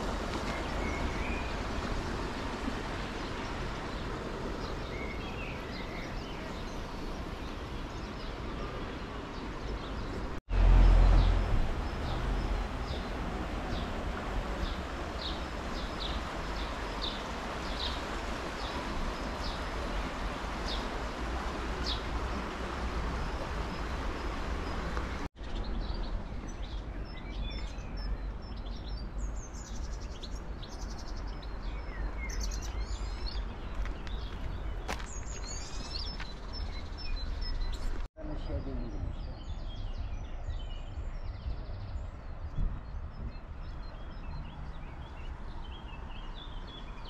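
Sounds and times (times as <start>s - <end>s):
outdoor background noise: 0.0s - 47.0s
small birds chirping: 0.0s - 47.0s.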